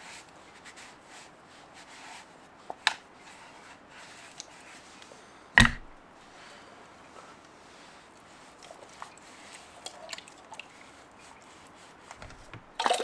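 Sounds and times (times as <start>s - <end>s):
loud knock: 5.6s - 5.9s.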